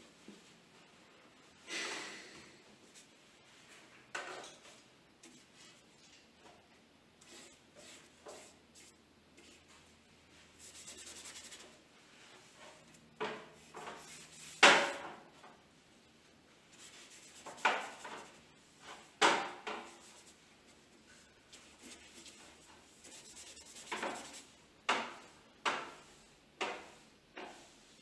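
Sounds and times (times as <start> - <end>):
paintbrush rubbing on paper: 7.2 - 13.0, 13.6 - 14.9, 16.7 - 19.1, 19.8 - 24.6.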